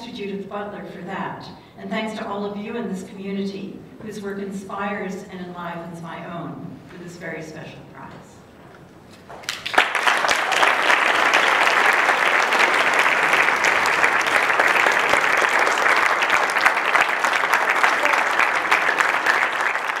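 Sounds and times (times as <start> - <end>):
audience applauding: 9.3 - 20.0.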